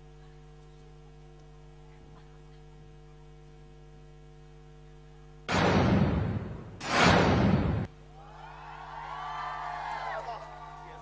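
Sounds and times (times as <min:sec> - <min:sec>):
faint electrical hum: 0:00.0 - 0:11.0
loud rushing boom: 0:05.5 - 0:07.9.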